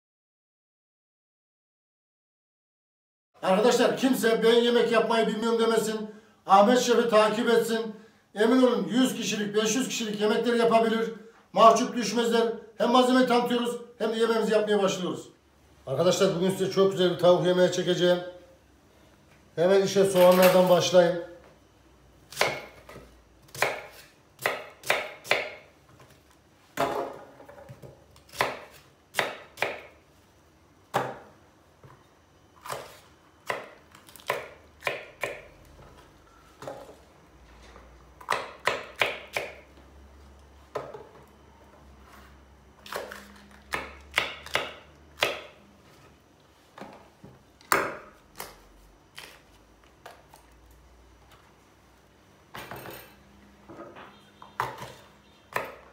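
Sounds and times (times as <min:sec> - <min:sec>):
knife chopping on wooden board: 0:22.3 - 0:25.6, 0:26.8 - 0:29.9, 0:32.6 - 0:35.5, 0:38.2 - 0:39.6, 0:42.8 - 0:45.6, 0:54.6 - 0:55.8.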